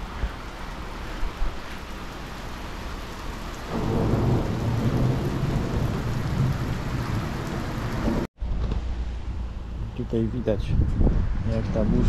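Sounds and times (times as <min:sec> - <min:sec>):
heavy rain pouring: 0:00.0 - 0:08.3
thunder rumbling: 0:03.4 - 0:08.3.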